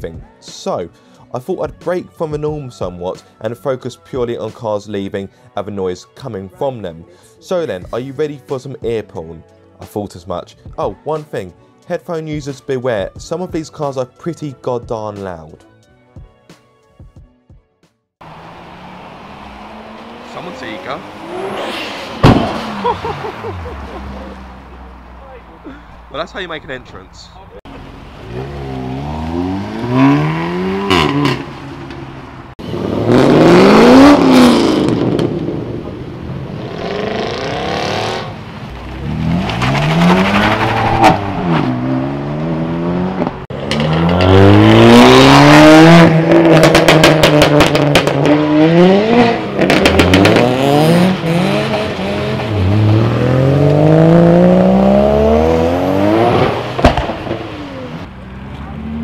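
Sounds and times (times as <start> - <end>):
performance cars accelerating hard: 18.2 - 25.2, 28.1 - 59.0.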